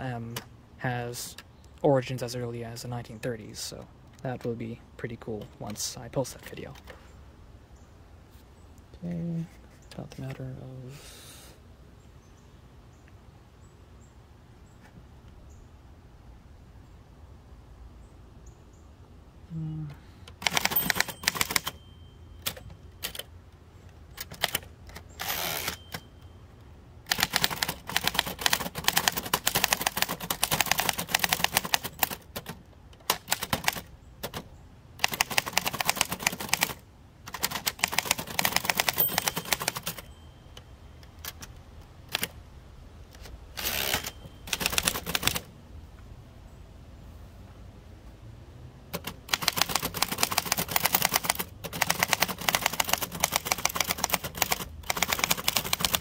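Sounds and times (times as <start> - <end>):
typewriter keys clacking: 20.3 - 21.8, 22.4 - 23.3, 27.1 - 40.1, 43.6 - 45.4, 49.0 - 56.0.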